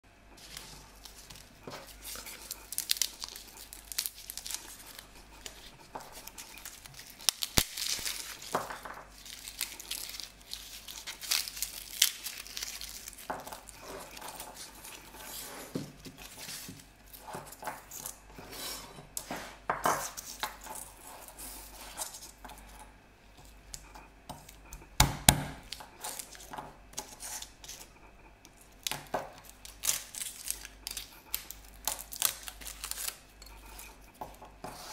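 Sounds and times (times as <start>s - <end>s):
garlic skins crinkling and tearing: 0.4s - 15.2s, 25.6s - 27.9s, 28.6s - 34.0s.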